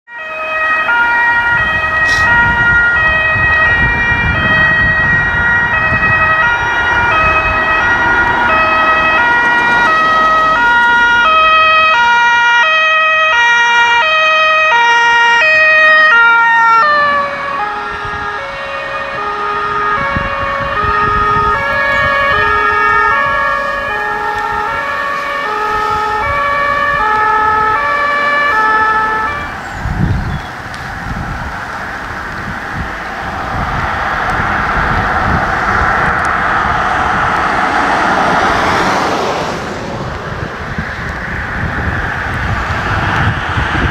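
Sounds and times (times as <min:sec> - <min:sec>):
two-tone emergency sirens: 0:00.0 - 0:43.9
low vehicle rumble: 0:00.6 - 0:12.6, 0:15.1 - 0:43.9.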